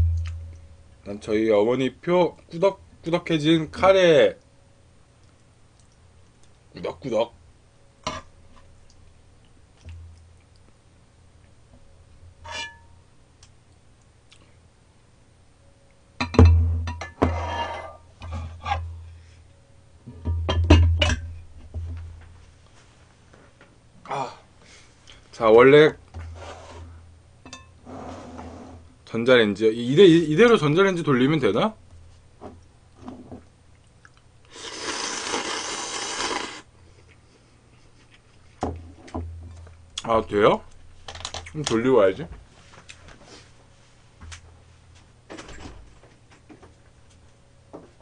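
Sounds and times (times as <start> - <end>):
person slurping noodles: 34.5 - 36.7.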